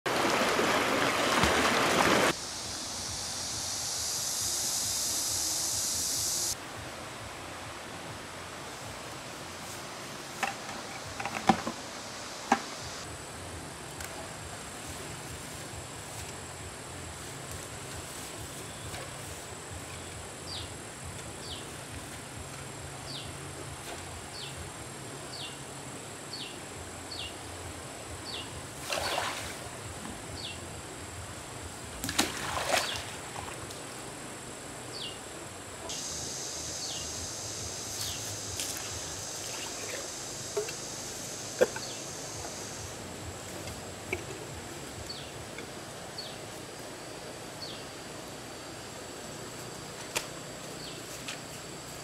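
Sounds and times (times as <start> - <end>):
water splashing: 0.0 - 2.4, 28.8 - 29.8, 32.0 - 33.9, 38.6 - 40.8
insect drone: 0.1 - 52.0
shrill insect drone: 2.4 - 6.6, 35.9 - 43.4.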